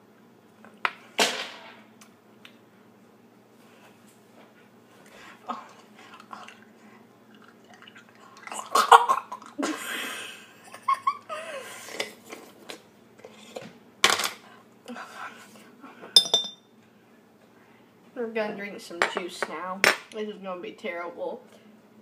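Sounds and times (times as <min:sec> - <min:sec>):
girl laughing: 0:08.7 - 0:11.8.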